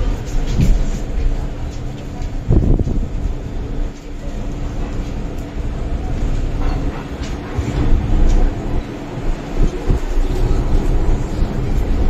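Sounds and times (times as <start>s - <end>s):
constant hum: 0.0s - 12.0s
train running gear rumble: 0.0s - 12.0s.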